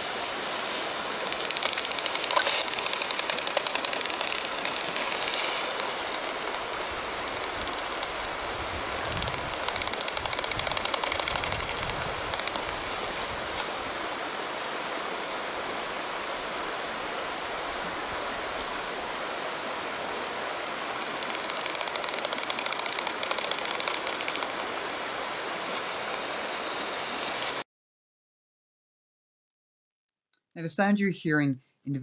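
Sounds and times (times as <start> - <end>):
steady hiss: 0.0 - 27.6
bat detector clicks: 1.2 - 8.2, 9.1 - 12.9, 21.1 - 24.8.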